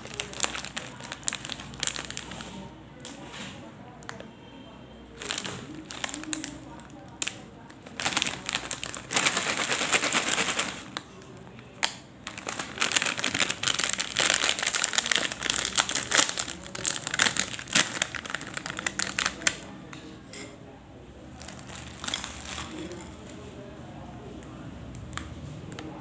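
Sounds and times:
snack packet crinkling: 0.0s - 2.5s, 5.2s - 19.7s, 21.4s - 23.1s.

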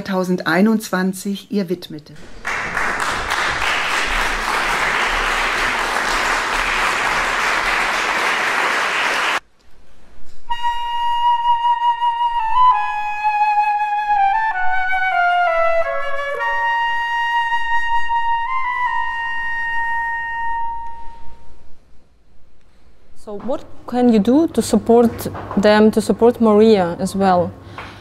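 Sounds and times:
audience applause: 2.3s - 9.4s
solo flute playing high notes: 10.5s - 21.7s.

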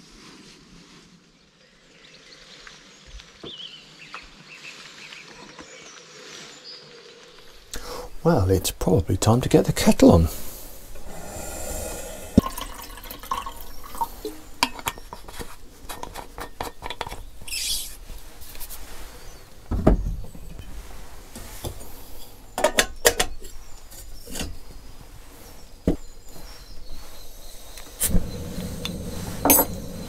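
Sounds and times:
water rushing: 10.0s - 14.7s, 28.0s - 30.0s
metal pots clinking: 12.3s - 17.2s, 22.6s - 23.6s, 28.0s - 30.0s.

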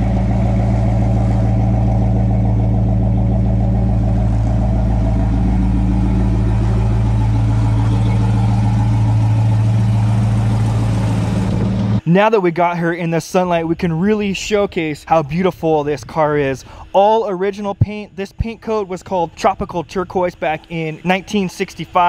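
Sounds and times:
car engine idling: 0.0s - 12.1s.

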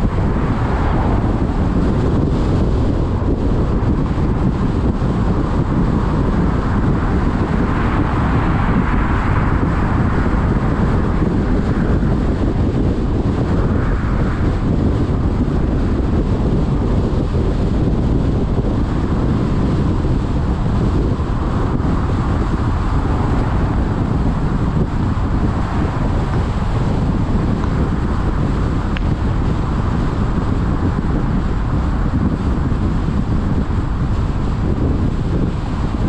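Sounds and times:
car road noise rumble: 0.0s - 36.0s
wind on microphone: 0.0s - 36.0s.

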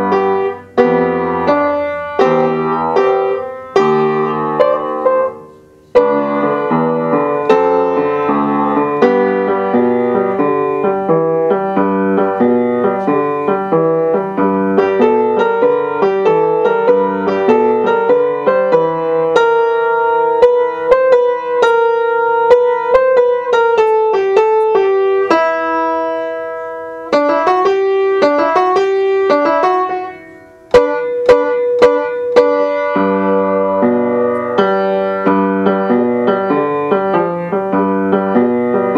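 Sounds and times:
upright piano tune: 0.0s - 38.9s.

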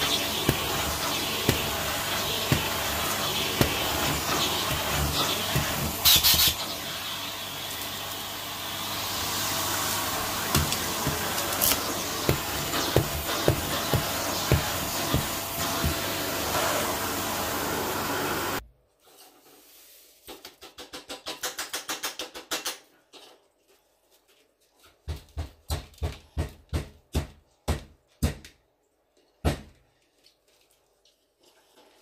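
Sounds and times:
vacuum cleaner sucking: 0.0s - 18.6s.

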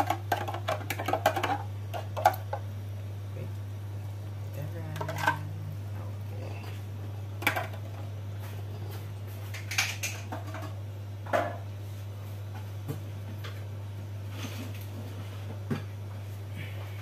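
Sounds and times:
steady low hum: 0.0s - 17.0s
kitchen utensils clattering: 9.4s - 11.6s.

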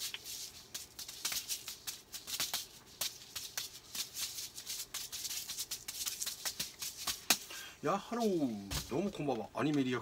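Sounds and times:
juggling balls slapping hands: 0.0s - 7.6s.

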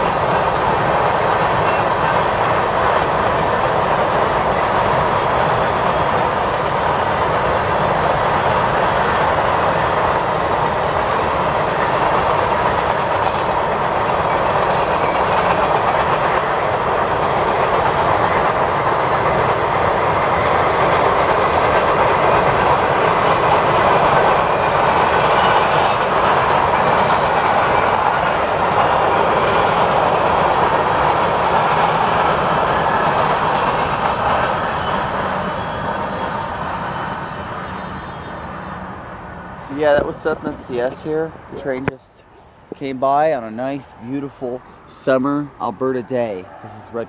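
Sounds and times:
wheels clicking over rail joints: 0.0s - 35.6s
freight train rolling: 0.0s - 47.0s.

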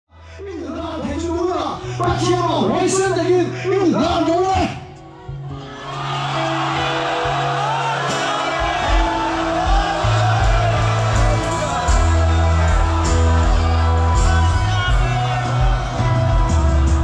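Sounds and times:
congregation shouting: 5.5s - 17.0s
gospel singing over heavy bass: 6.2s - 17.0s.

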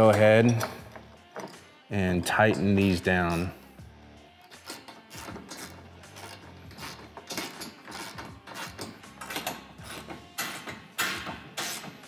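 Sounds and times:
metal tool clinking on bolts: 0.0s - 1.7s, 2.3s - 3.5s.

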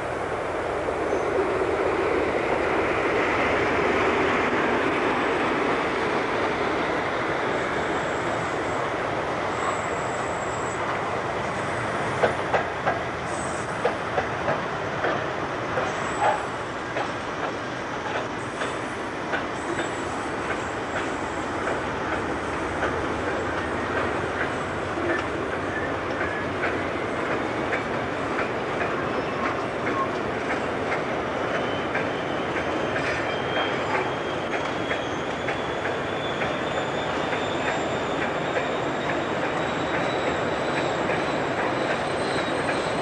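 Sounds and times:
diesel locomotive engine: 0.0s - 43.0s
high-pitched wheel squeals: 31.5s - 43.0s.

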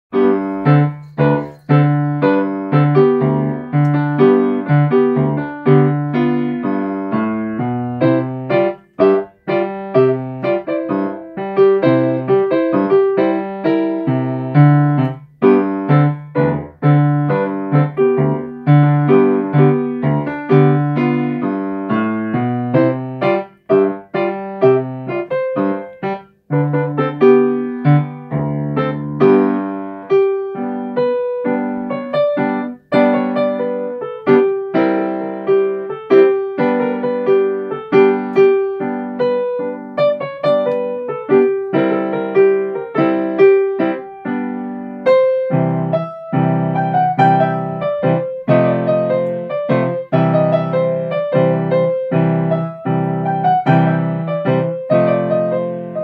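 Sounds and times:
ragtime piano piece: 0.1s - 56.0s.

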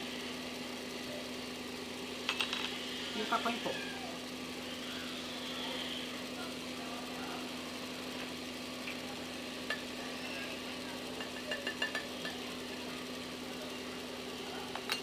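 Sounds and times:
steady low hum: 0.0s - 15.0s
cup tapping blender jar: 11.2s - 12.4s.

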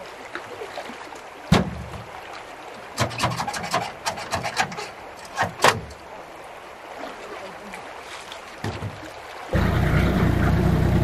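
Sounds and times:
sharp knocks: 1.5s - 2.1s
rasping scrapes and clicks: 3.0s - 5.8s.

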